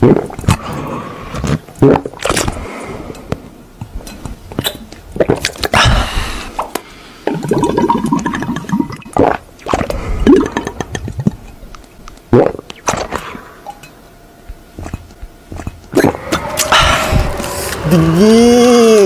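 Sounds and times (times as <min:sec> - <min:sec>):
person gulping from a bottle: 0:00.0 - 0:02.7, 0:04.6 - 0:11.6, 0:12.3 - 0:13.9, 0:14.5 - 0:17.9.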